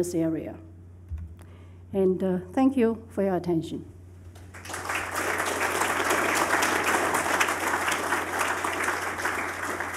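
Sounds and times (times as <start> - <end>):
audience applauding: 4.5 - 9.9.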